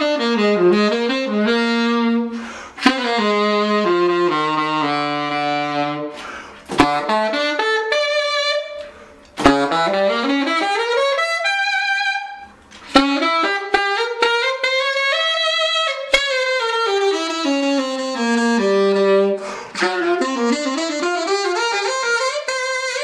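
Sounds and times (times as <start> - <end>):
solo saxophone: 0.0 - 23.0
player breathing: 2.3 - 2.8, 6.1 - 6.7, 19.4 - 19.8.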